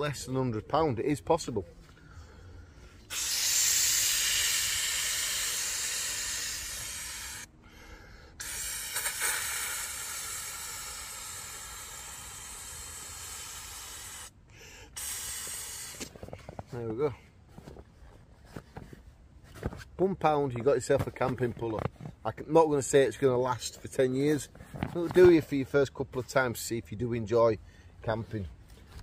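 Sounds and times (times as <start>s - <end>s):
man blowing into pillow valve: 3.0s - 16.6s.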